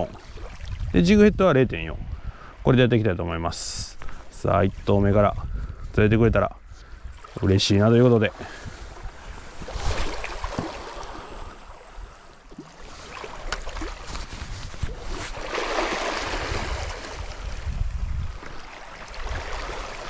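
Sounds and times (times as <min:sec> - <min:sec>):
wind rumble on microphone: 0:00.0 - 0:10.7, 0:12.9 - 0:15.5, 0:16.1 - 0:20.0
surf washing onto beach: 0:12.9 - 0:17.8.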